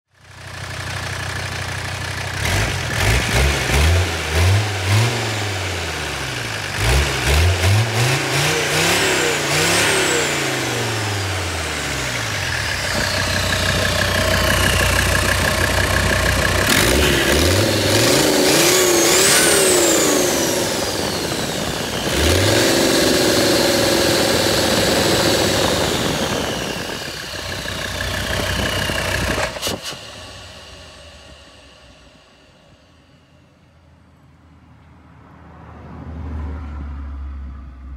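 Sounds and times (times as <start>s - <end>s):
diesel engine revving: 2.1s - 32.4s
turbocharger whistling: 4.4s - 33.7s.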